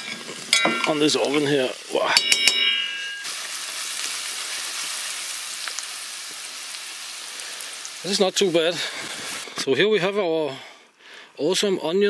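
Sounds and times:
food sizzling in a pan: 0.0 - 9.6.

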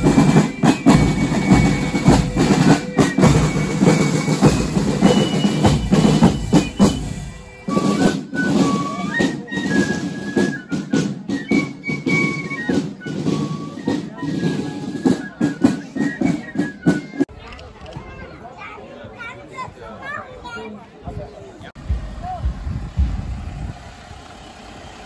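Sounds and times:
cymbals: 0.0 - 17.3
snare drums: 0.0 - 17.3, 21.8 - 23.5
bass drum: 21.8 - 23.9.

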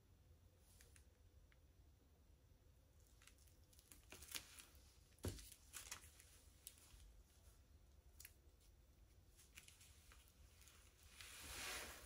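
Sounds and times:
faint clicks and rustles: 2.9 - 12.0.

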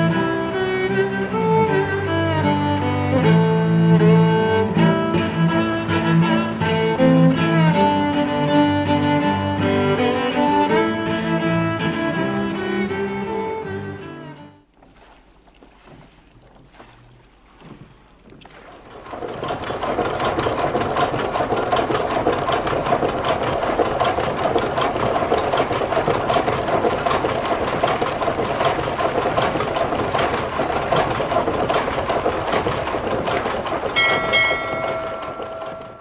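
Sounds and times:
machine clattering: 18.5 - 36.0.

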